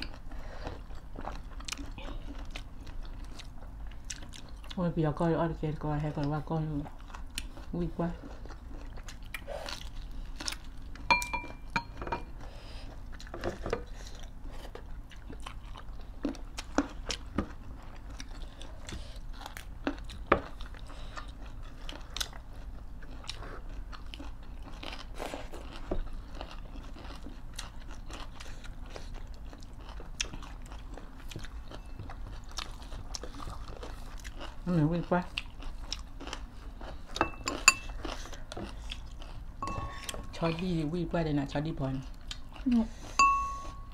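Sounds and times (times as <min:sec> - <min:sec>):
people chewing food: 0:00.0 - 0:43.9
spoon clinking on dish: 0:11.1 - 0:12.3, 0:37.2 - 0:37.9, 0:39.6 - 0:40.7, 0:43.2 - 0:43.9.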